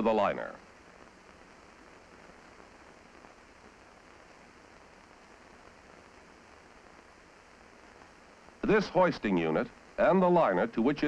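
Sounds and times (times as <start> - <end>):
film soundtrack hiss: 0.0 - 11.0.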